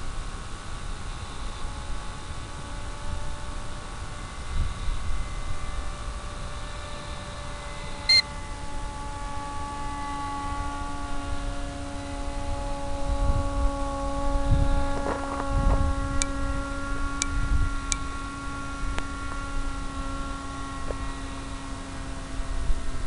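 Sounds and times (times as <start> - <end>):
electric motor propeller whine: 0.0 - 23.0
low wind rumble: 0.0 - 23.0
short loud beep: 8.1 - 8.3.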